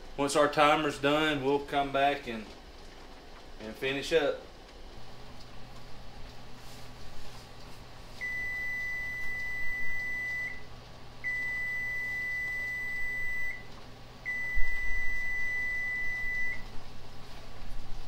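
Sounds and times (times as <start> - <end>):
timer alarm long high beeps: 8.2 - 10.7, 11.3 - 13.7, 14.3 - 16.6.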